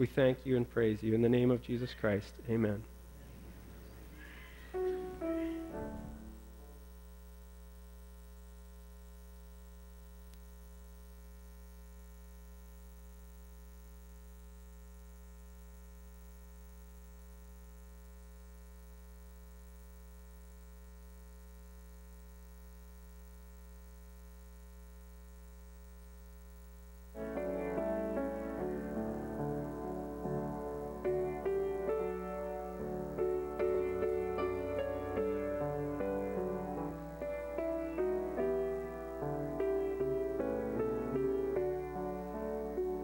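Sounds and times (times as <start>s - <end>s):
electrical mains hum: 0.0s - 43.0s
music: 4.4s - 7.1s, 27.1s - 43.0s.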